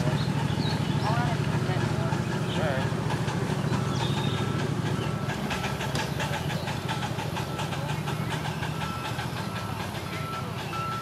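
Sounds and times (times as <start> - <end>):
steam train rumbling past: 0.0 - 11.0
wheels clicking on track: 0.0 - 11.0.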